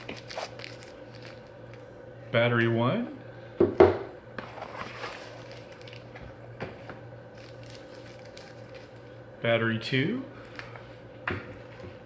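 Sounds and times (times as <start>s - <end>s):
steady low hum: 0.0s - 12.0s
paper rustling: 4.4s - 6.2s, 7.4s - 9.1s.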